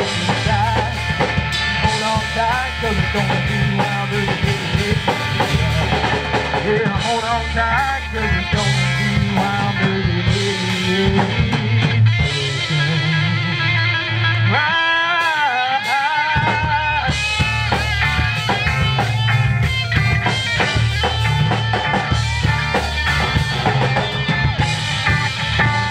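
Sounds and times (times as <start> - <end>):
bending lead guitar line: 0.0 - 25.9
drum kit: 0.0 - 25.9
electric bass: 0.0 - 25.9
electric guitars: 0.0 - 25.9.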